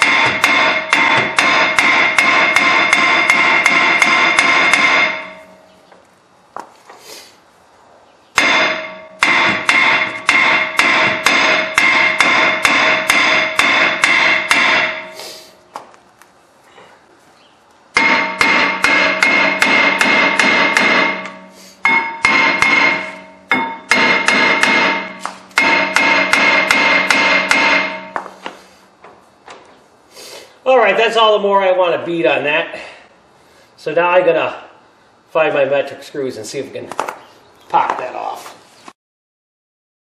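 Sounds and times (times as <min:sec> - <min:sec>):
hammer ringing on brake rotor: 0:00.0 - 0:05.7, 0:08.4 - 0:15.2, 0:18.0 - 0:28.4.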